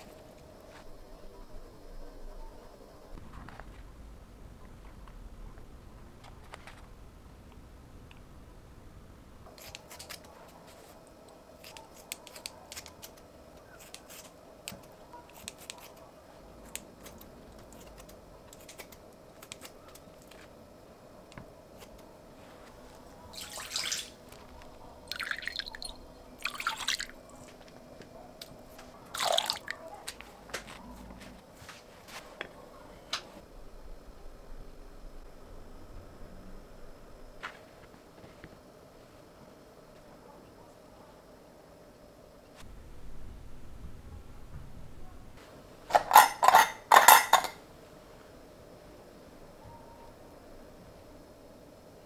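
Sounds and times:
kitchen shears snipping chicken: 0:11.6 - 0:16.1
liquid pouring into glass bowl: 0:25.1 - 0:27.2, 0:29.2 - 0:29.7
spoon scraping bowl: 0:45.9 - 0:47.6.

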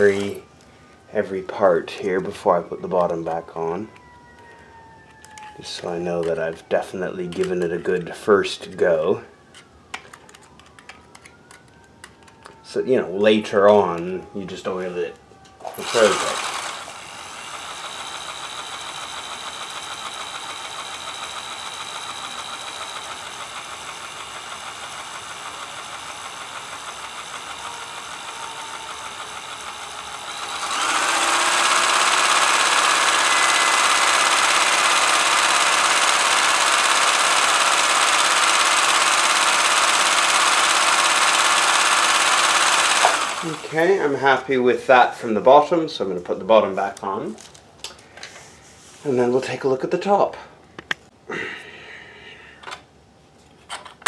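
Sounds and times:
sewing machine running: 0:15.7 - 0:44.0.

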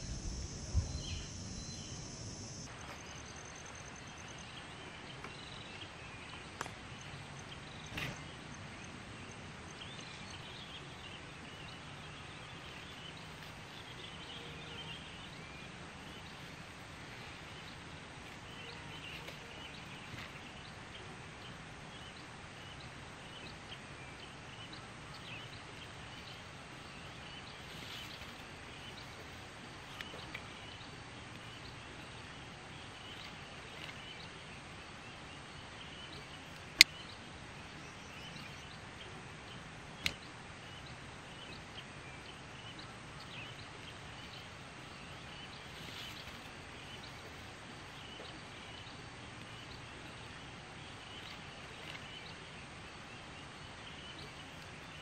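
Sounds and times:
faint high chirping: 0:00.0 - 0:05.8
outdoor ambience: 0:00.0 - 0:55.0.

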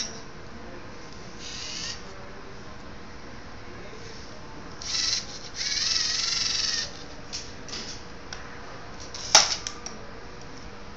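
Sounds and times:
servo motors whining: 0:04.8 - 0:07.0.

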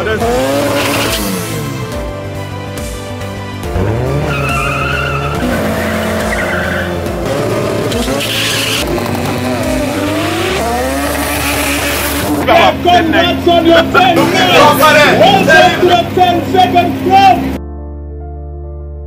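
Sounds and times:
race cars revving: 0:00.0 - 0:02.4, 0:03.5 - 0:17.6
music with heavy bass: 0:00.0 - 0:17.6
tyres squealing: 0:04.2 - 0:07.0, 0:07.9 - 0:17.4.

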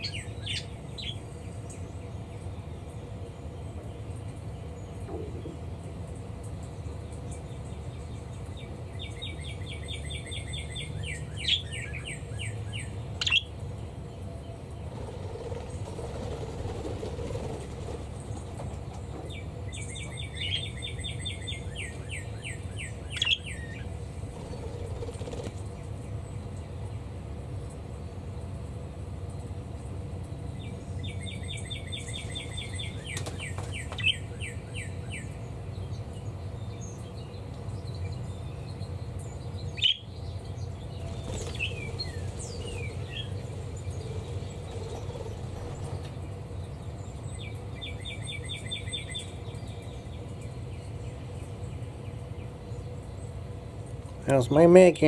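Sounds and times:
budgies rapid high chirps: 0:00.0 - 0:01.8, 0:08.2 - 0:13.6, 0:19.3 - 0:25.9, 0:30.6 - 0:36.0, 0:36.6 - 0:51.7
steady low hum: 0:00.0 - 0:55.0.

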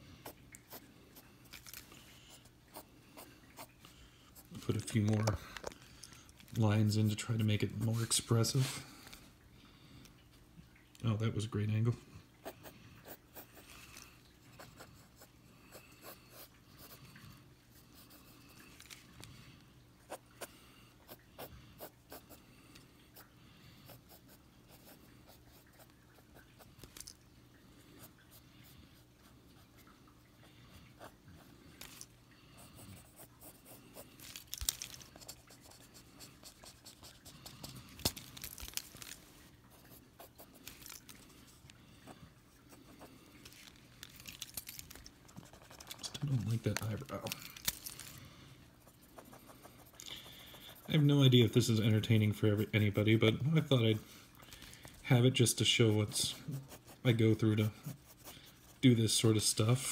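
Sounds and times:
pencil scratching on paper: 0:35.1 - 0:37.8, 0:48.8 - 0:51.1, 0:55.9 - 0:59.0.

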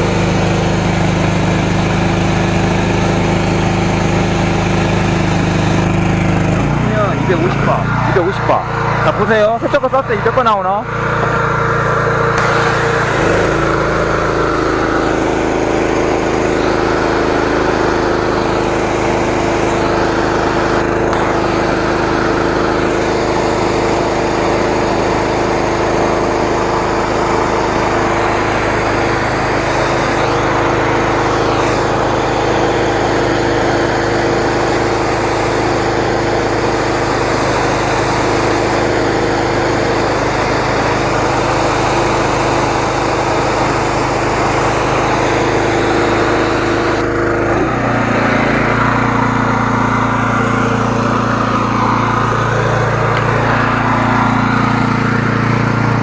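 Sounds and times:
pump engine running: 0:00.0 - 0:56.0
pressure washer spray hiss: 0:11.2 - 0:25.9, 0:26.6 - 0:48.0.

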